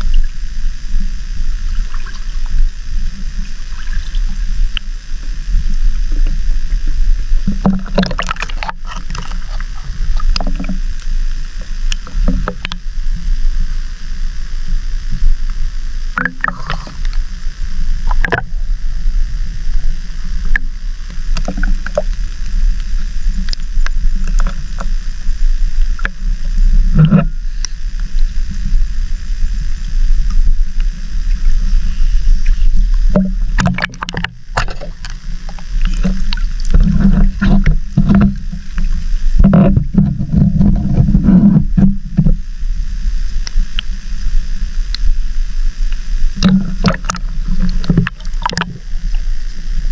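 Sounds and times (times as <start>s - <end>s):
water sloshing and gurgling: 0.0s - 13.8s, 16.0s - 28.8s, 29.4s - 42.4s, 46.3s - 49.8s
steady low rumble: 0.0s - 49.9s.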